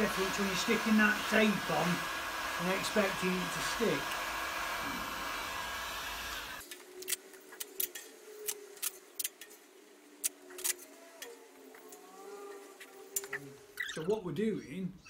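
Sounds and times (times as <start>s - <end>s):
heat gun blowing hot air: 0.0s - 6.7s.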